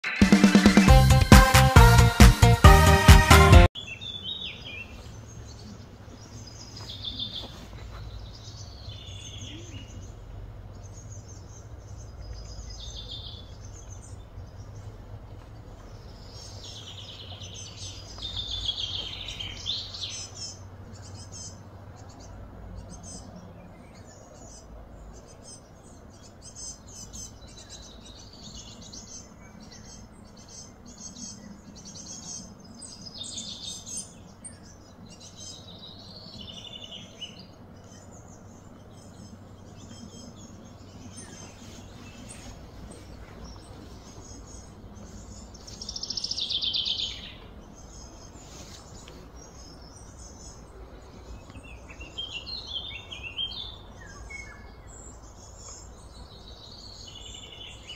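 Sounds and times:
birds chirping and calling: 3.8 - 57.9
low steady rumble: 8.1 - 28.4.

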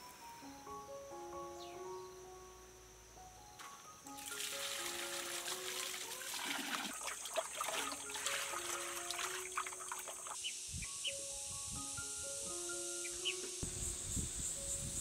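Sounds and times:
soft background music: 0.0 - 15.0
water splashing in a basin: 4.2 - 10.4.

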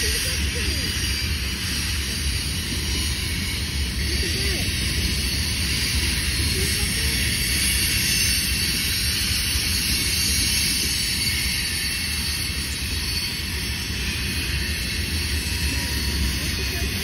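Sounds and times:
freight train wheels on rails: 0.0 - 17.0.

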